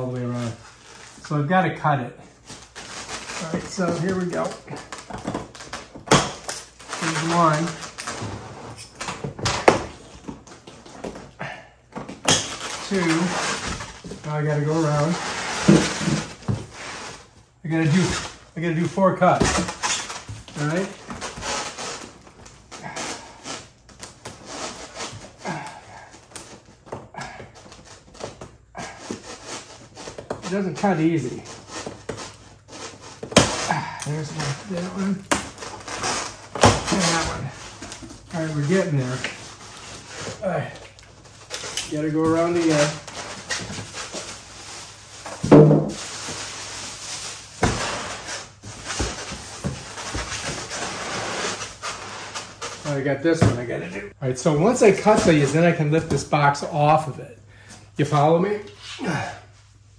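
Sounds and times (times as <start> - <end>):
cardboard and plastic straps rustling: 0.0 - 56.6
person grunting: 33.7 - 34.1, 59.0 - 59.5.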